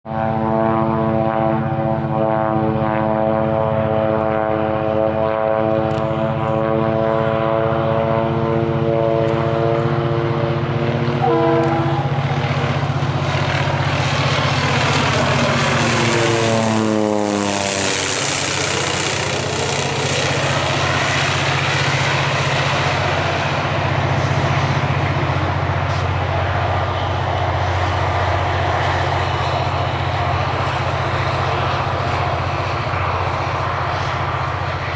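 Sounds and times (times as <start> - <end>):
propeller plane droning overhead: 0.0 - 34.9.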